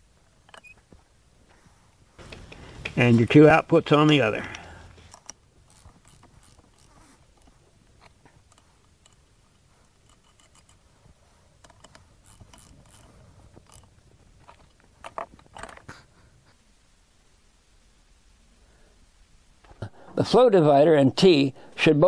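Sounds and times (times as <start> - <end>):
metallic clicks and clinks: 4.0 - 10.8, 11.6 - 15.9
ratchet wrench clicking: 4.5 - 7.5, 11.6 - 13.9.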